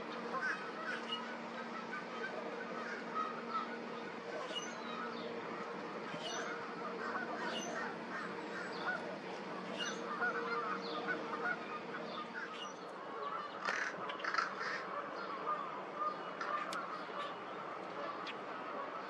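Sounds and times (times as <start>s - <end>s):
overlapping bird calls: 0.0s - 19.0s
steady low hum: 0.0s - 19.0s
high chirps of small birds: 2.9s - 5.4s, 6.1s - 9.0s, 9.6s - 15.4s.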